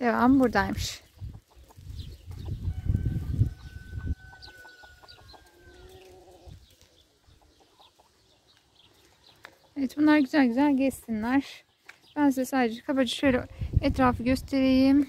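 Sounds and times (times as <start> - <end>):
chickens clucking: 0.7 - 10.0
drawn-out chicken call: 1.2 - 9.8.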